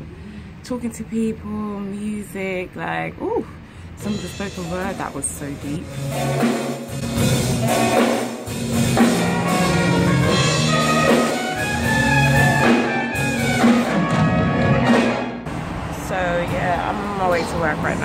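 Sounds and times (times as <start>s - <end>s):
big band jazz: 4.0s - 15.4s
drum kit: 4.0s - 15.5s
saxophones holding chords: 5.8s - 15.2s.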